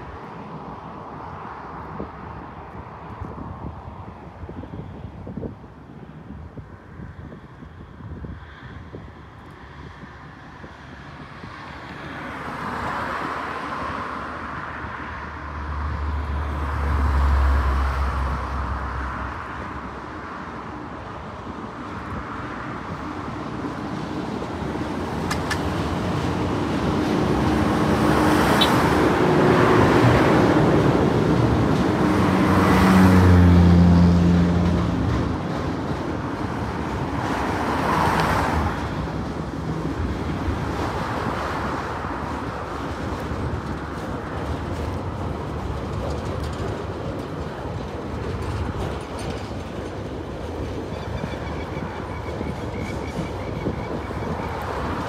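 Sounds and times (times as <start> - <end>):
freight wagons rumbling by: 14.3 - 55.0
locomotive engines droning: 17.5 - 37.4, 38.7 - 55.0.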